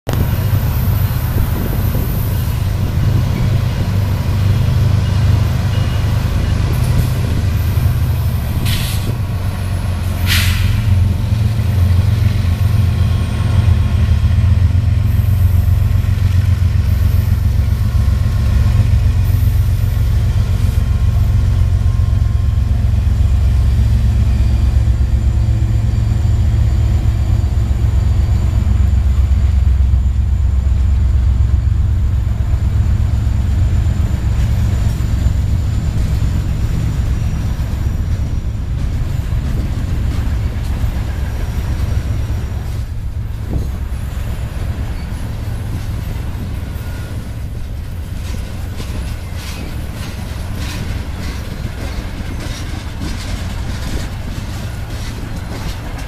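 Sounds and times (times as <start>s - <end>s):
diesel locomotives rumbling: 0.1s - 56.0s
freight cars rolling on rails: 0.1s - 56.0s
short hisses: 10.3s - 10.9s.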